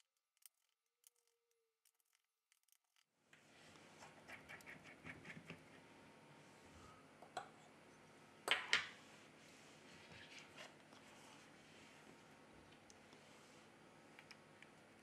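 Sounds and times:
screwdriver ticks and scratches: 0.0s - 3.1s.

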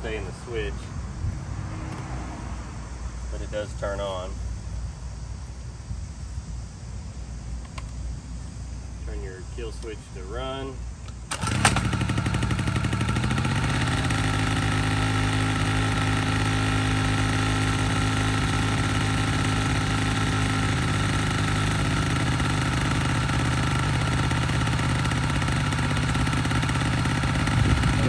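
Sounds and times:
scooter engine idling: 11.2s - 28.0s.

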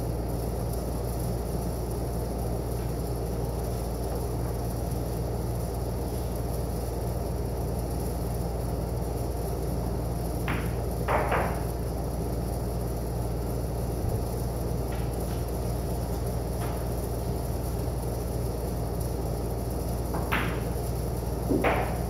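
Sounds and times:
steady low hum: 0.0s - 22.0s
pool balls clacking: 10.5s - 11.7s, 21.5s - 22.0s.

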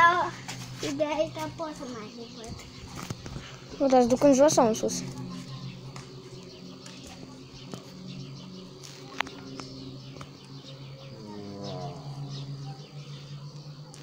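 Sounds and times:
propeller aircraft droning: 0.0s - 14.0s.

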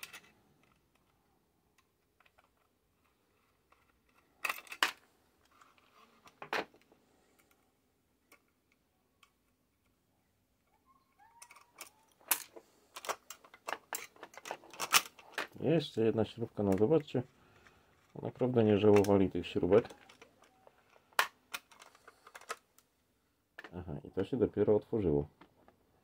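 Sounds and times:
light clicks and metallic rattles: 11.4s - 15.6s.

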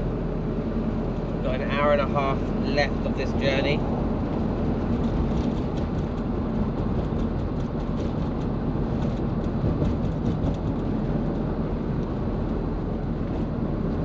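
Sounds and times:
road noise inside vehicle: 0.0s - 14.0s.

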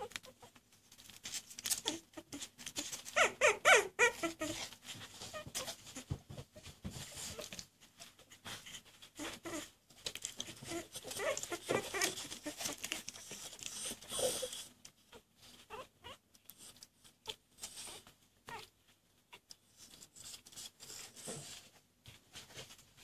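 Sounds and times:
paws scratching on towels: 0.0s - 23.0s
puppies squeaking and whimpering: 1.7s - 7.6s, 8.2s - 9.8s, 10.4s - 16.2s.

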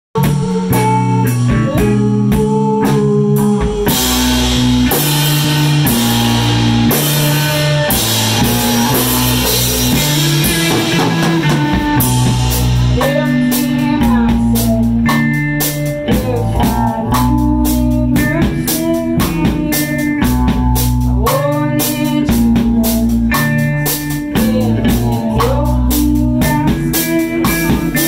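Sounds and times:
drum kit with cymbals: 0.2s - 28.0s
electric guitar chords: 0.2s - 28.0s
steady bass line: 0.2s - 28.0s.

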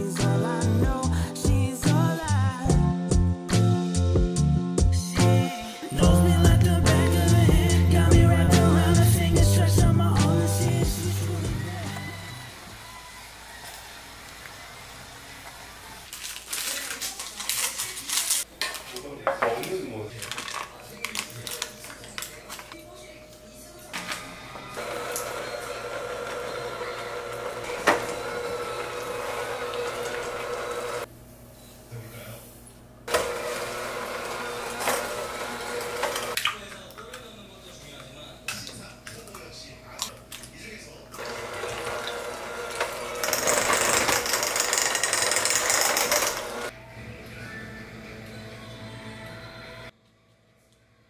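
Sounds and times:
electric hand mixer running: 24.4s - 31.1s, 33.1s - 36.4s, 41.2s - 46.7s.

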